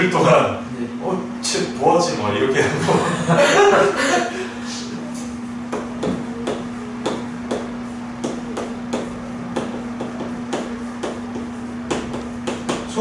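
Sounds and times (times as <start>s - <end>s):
chalk tapping on blackboard: 5.7s - 13.0s.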